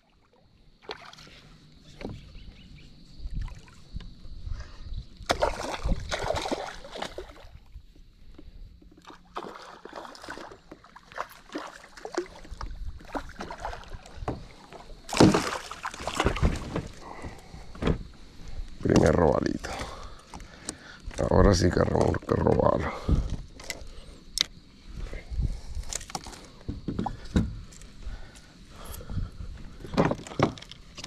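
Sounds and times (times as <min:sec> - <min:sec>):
fish splashing at the surface: 0:05.2 - 0:07.5, 0:09.1 - 0:14.2, 0:15.1 - 0:16.8.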